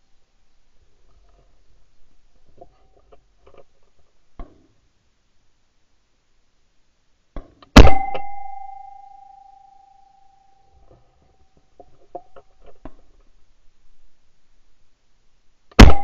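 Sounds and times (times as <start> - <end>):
shotgun shot: 7.8 - 8.2, 15.8 - 16.0
steady ringing tone: 7.8 - 10.8.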